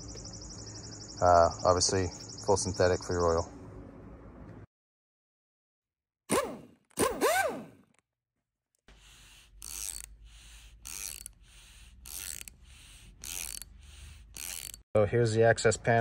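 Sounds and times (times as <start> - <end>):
mechanical rasping strokes: 8.8 - 14.8.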